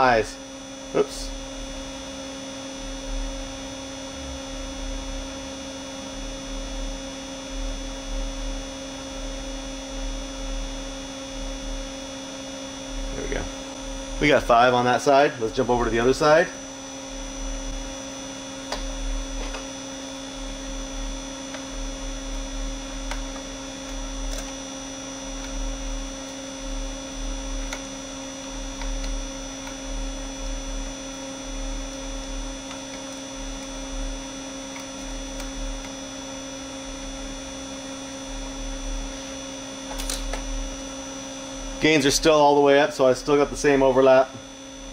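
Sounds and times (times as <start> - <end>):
electrical hum and buzz: 0.0 - 44.9
pulsing low throb: 2.8 - 11.8
steady pitched tones: 12.9 - 19.4.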